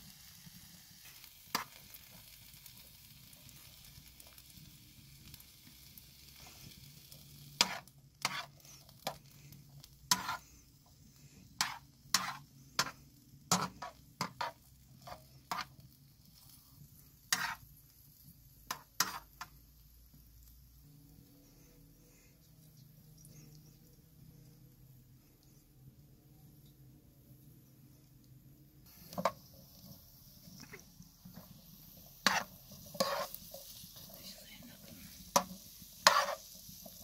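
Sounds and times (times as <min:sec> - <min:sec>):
vegetables sizzling in a pan: 0:00.0 - 0:37.0
metal ladle scraping a pan: 0:06.4 - 0:17.8, 0:18.7 - 0:19.5, 0:28.9 - 0:34.1, 0:35.0 - 0:37.0.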